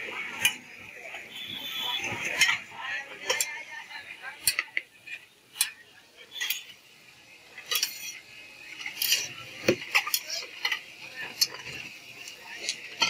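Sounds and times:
metal utensils scraping frying pan: 4.4 - 6.9, 7.5 - 13.0.

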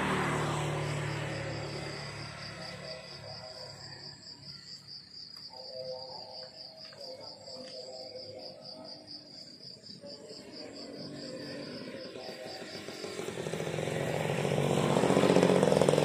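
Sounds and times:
crickets trilling: 0.1 - 16.0.

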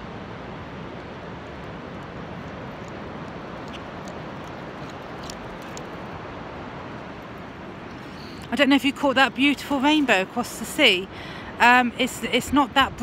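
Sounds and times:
wind buffeting microphone: 0.2 - 13.0
faint clicks: 1.6 - 6.0.

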